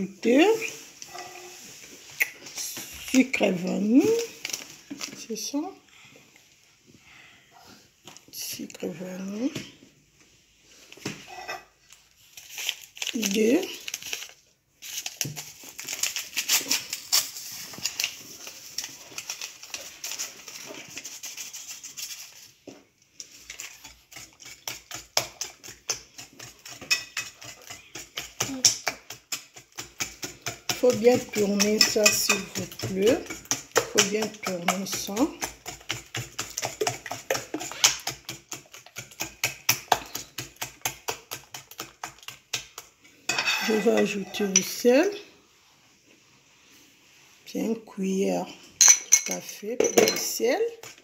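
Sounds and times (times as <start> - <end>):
sugar rattling from paper sachet: 12.2 - 22.5
whisk beating against glass: 24.1 - 42.4.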